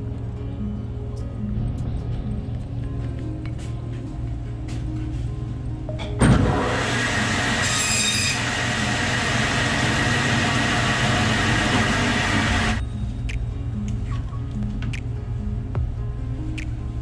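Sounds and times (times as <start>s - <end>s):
high bandsaw squeal: 6.6s - 12.8s
bandsaw cutting through bone: 7.0s - 12.8s.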